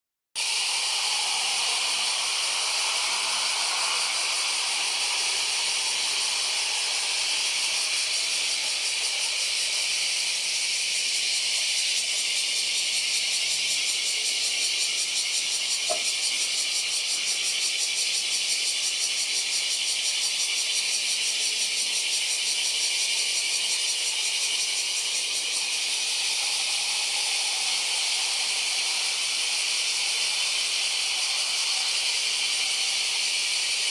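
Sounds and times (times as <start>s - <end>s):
cicadas chorus: 0.4s - 33.9s.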